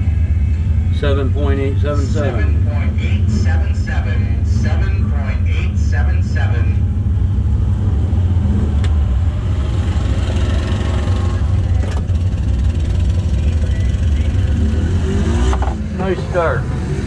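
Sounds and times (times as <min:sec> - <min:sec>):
engines idling: 0:00.0 - 0:17.0
quad bike engine revving: 0:08.3 - 0:17.0.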